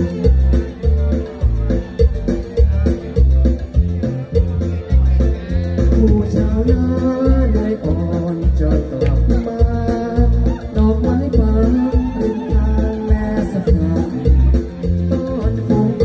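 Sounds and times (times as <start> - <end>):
amplified music with heavy bass: 0.0 - 16.0
man singing through microphone: 5.3 - 16.0.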